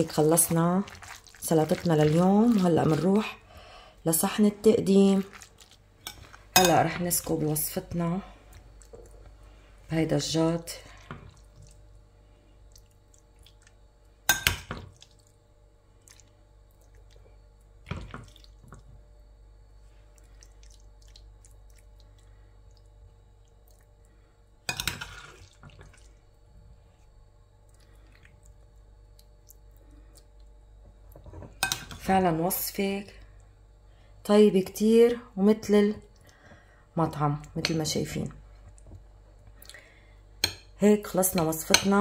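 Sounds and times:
spoon scooping wet coleslaw: 0.0s - 9.3s, 17.8s - 18.8s, 24.7s - 26.2s.

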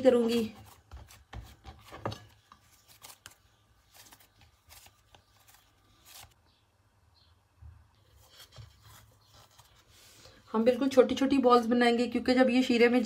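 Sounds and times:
hands kneading dough on a plate: 0.0s - 6.4s.

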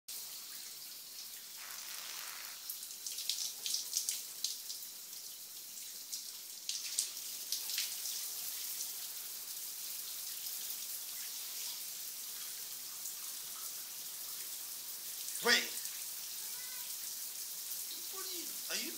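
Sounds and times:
shower water spray hiss: 1.4s - 3.4s, 10.6s - 12.6s.

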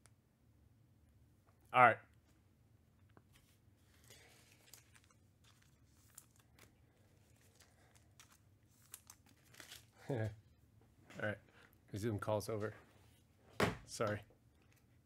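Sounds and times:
faint room hum: 0.0s - 15.0s
trading cards rustling and ticking: 3.2s - 10.0s.

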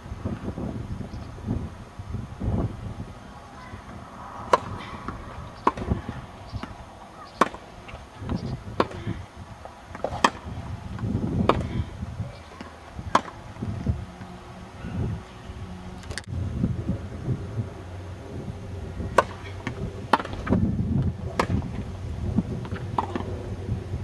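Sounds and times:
tennis racquets hitting balls: 3.5s - 14.3s, 19.0s - 20.6s, 21.3s - 21.9s, 22.6s - 23.3s.

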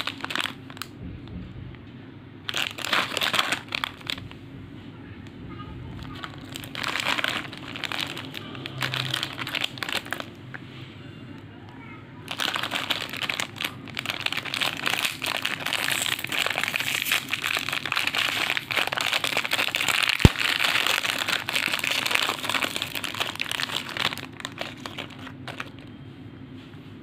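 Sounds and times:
plastic wrapper crinkling: 0.0s - 1.3s, 2.4s - 4.4s, 5.9s - 10.6s, 12.2s - 25.9s
wrapper sharp snap: 19.8s - 22.5s.

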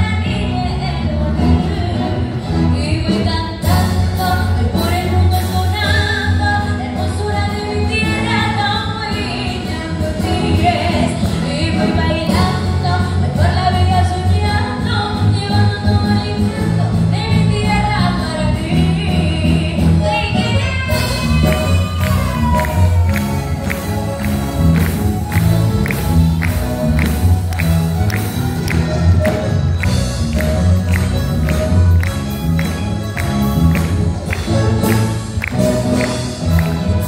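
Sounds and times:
woman singing into microphone: 0.0s - 23.2s
symphony orchestra playing: 0.0s - 37.0s.

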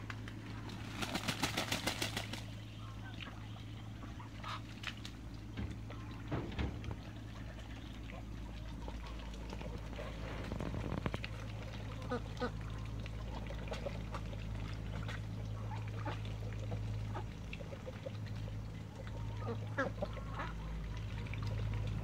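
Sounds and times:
ducks dabbling in water: 0.0s - 22.0s
steady low hum: 0.0s - 22.0s
water trickling: 0.0s - 22.0s
ducks quacking: 1.0s - 10.5s, 11.8s - 13.5s, 15.5s - 16.4s, 19.1s - 21.2s.

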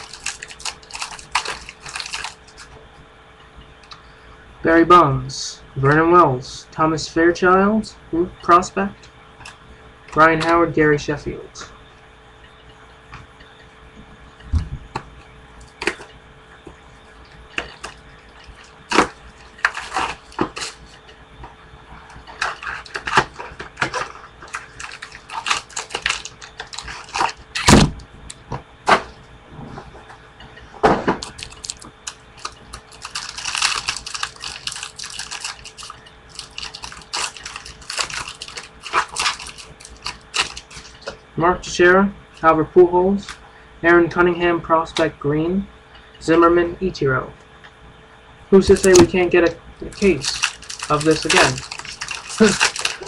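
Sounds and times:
wrapper crinkling: 0.0s - 2.7s, 17.2s - 21.0s, 22.2s - 27.8s, 31.2s - 41.0s, 48.6s - 49.1s, 49.8s - 53.0s
cards clicking and shuffling: 31.2s - 41.0s, 48.6s - 49.1s, 49.8s - 53.0s.

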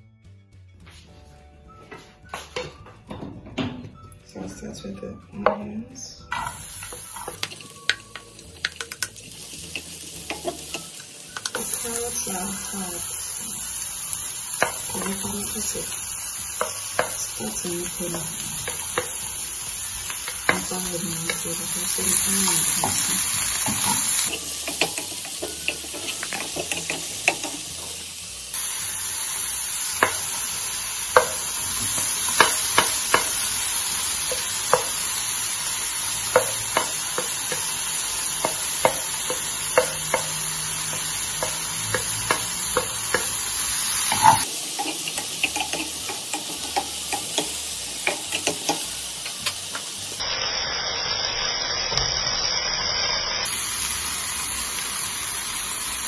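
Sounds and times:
vegetables sizzling in a frying pan: 6.3s - 56.0s
wooden spatula tapping and scraping: 22.8s - 28.0s, 38.4s - 43.4s, 44.2s - 49.8s.

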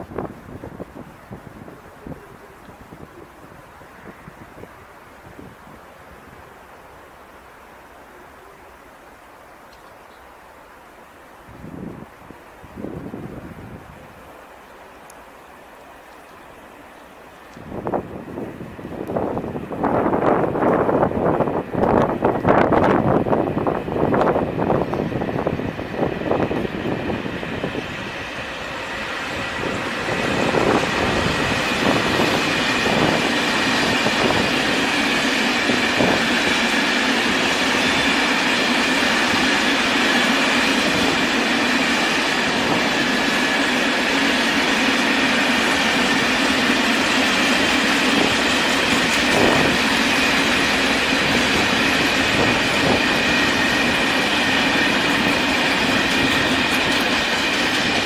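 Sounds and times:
freight train rolling past: 0.0s - 58.0s
wheels clicking over rail joints: 42.6s - 58.0s.

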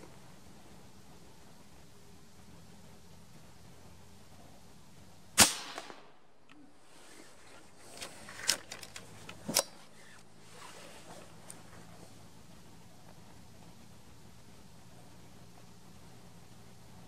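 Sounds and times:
air rifle shot: 5.4s - 6.3s
metallic clicks of rifle cocking: 8.0s - 9.8s.

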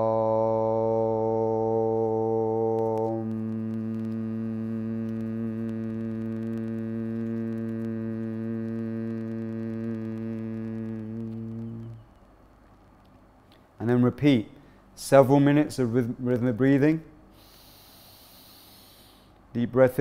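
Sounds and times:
man humming a low tone: 0.0s - 12.2s.

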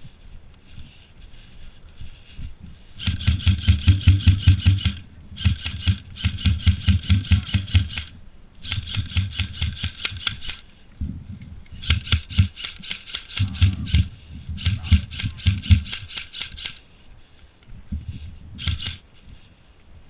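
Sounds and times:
airsoft rifle full-auto bursts: 3.0s - 10.6s, 11.8s - 16.8s, 18.6s - 19.0s.

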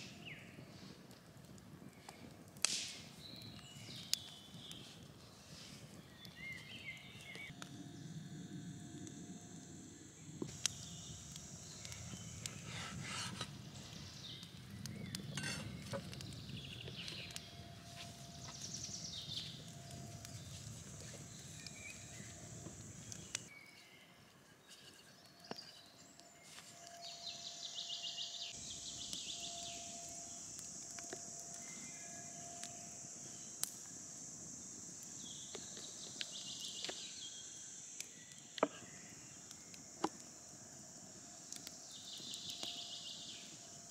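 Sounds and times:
steady high hiss: 4.4s - 23.6s, 24.2s - 43.9s.

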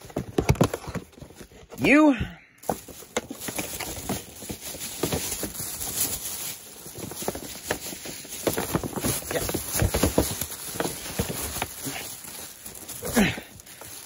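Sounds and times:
boxes knocking: 0.0s - 1.7s, 2.6s - 5.8s, 6.9s - 14.0s
plastic bag rustling: 2.6s - 14.0s.

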